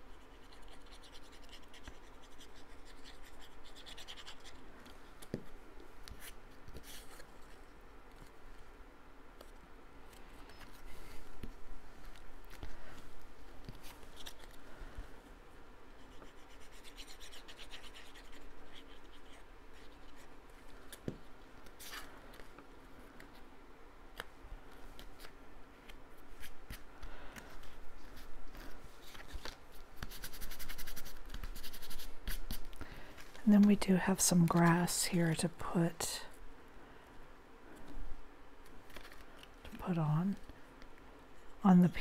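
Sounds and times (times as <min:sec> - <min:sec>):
paper rustling and scratching: 0:00.3 - 0:08.4, 0:13.6 - 0:14.7, 0:24.2 - 0:33.4, 0:38.6 - 0:39.8.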